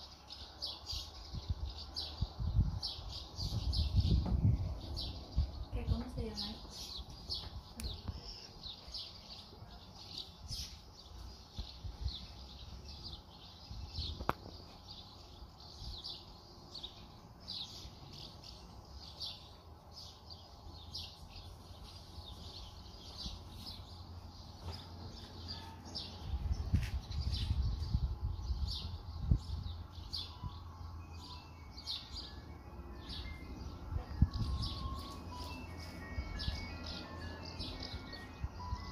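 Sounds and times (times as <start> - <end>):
birds chirping: 0.0 - 38.9
wind rumble on microphone: 0.9 - 8.3, 26.0 - 30.6, 33.6 - 35.1.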